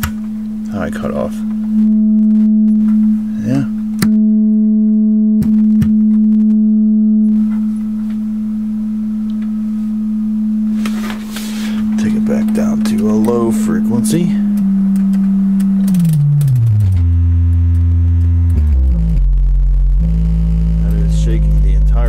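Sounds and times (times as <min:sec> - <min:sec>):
low test tone: 0:00.0 - 0:22.0
sharp clicks: 0:14.5 - 0:18.6.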